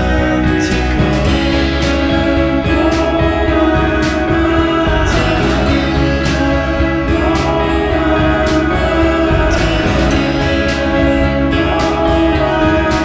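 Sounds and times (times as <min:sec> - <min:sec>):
soundtrack music with steady beat: 0:00.0 - 0:13.0.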